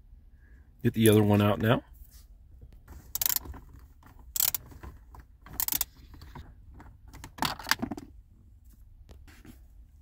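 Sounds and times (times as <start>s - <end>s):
hand ratchet clicking: 3.2s - 3.5s, 4.4s - 4.6s, 5.5s - 5.9s.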